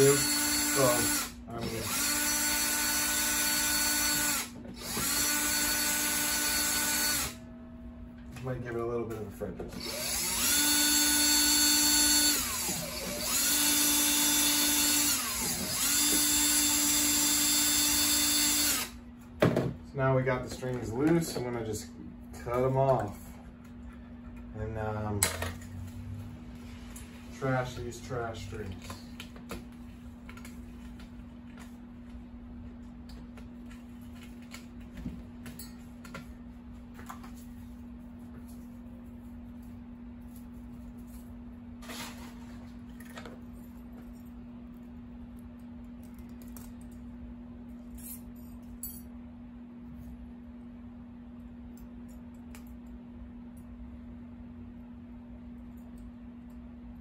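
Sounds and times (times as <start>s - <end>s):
cordless drill motor whine: 0.0s - 7.4s, 9.8s - 19.0s
steady low hum: 4.6s - 15.8s.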